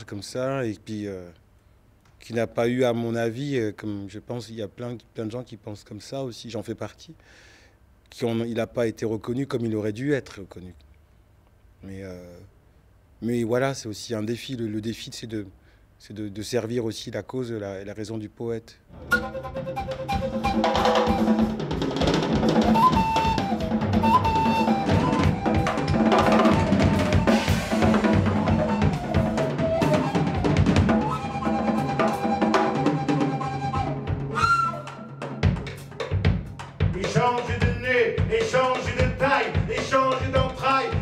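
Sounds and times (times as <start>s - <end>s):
drum kit playing busy rhythm: 19.1s - 34.5s, 35.2s - 41.0s.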